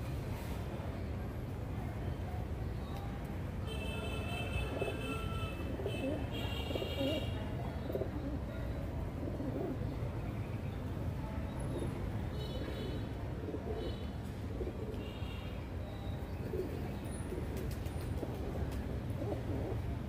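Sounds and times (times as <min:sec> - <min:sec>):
pigeons cooing: 0:04.8 - 0:10.0, 0:16.4 - 0:19.9.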